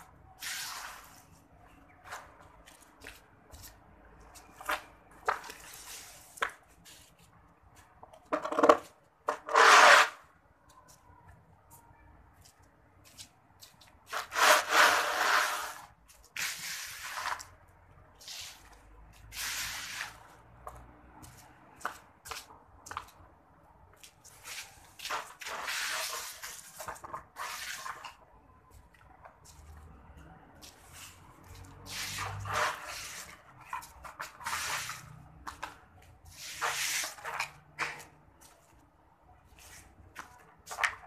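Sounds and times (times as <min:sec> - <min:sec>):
leaves scraping on concrete: 0:00.4 - 0:01.4, 0:02.0 - 0:07.2, 0:09.3 - 0:10.3, 0:14.0 - 0:17.6, 0:18.2 - 0:20.4, 0:24.3 - 0:28.2, 0:30.6 - 0:38.7, 0:39.5 - 0:41.0.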